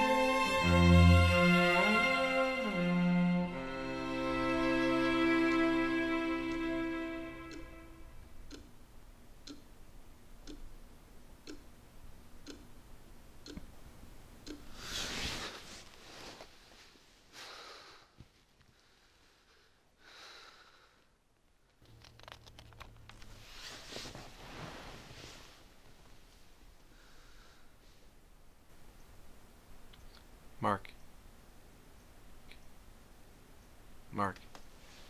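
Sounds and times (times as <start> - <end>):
soft ticking: 5.1 - 14.9
man breathing heavily and gasping: 20.0 - 21.0.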